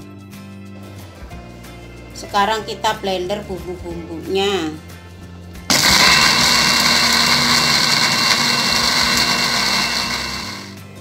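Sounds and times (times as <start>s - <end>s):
blender motor whining: 5.7s - 11.0s.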